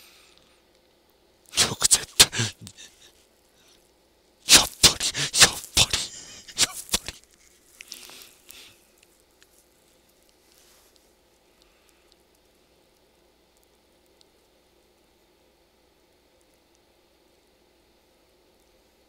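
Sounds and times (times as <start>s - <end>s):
man laughing breathily: 1.6s - 3.1s, 4.6s - 7.2s.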